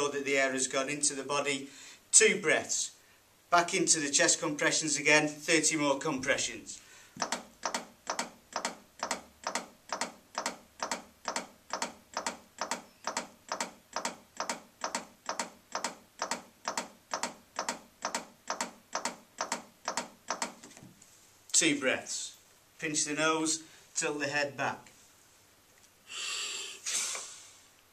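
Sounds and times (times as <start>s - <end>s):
manikin compression clicks: 7.2s - 20.6s.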